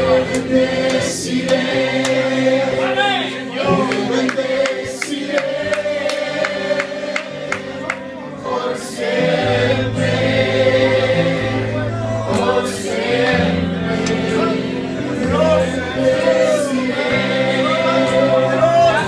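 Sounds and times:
group of voices singing: 0:00.0 - 0:19.0
instrumental accompaniment: 0:00.0 - 0:19.0
deep sustained bass notes: 0:09.2 - 0:17.9.

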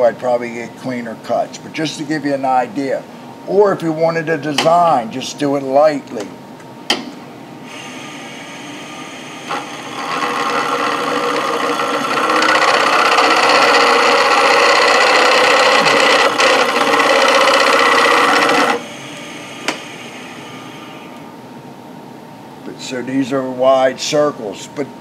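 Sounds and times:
lathe running: 0:07.7 - 0:21.2
cutter rasping on spinning wood: 0:09.4 - 0:19.0.

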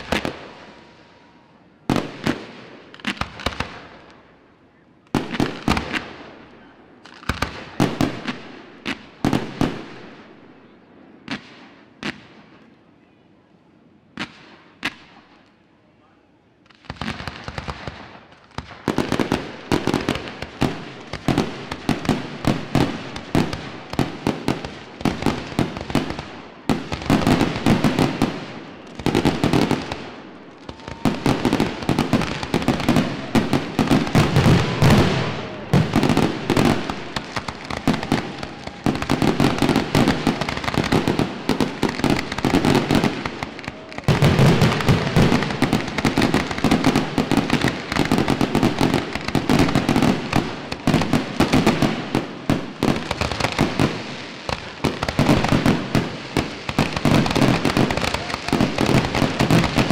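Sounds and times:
fireworks bursting: 0:00.0 - 0:04.3, 0:05.1 - 0:12.7, 0:14.1 - 0:15.6, 0:16.6 - 0:59.9.

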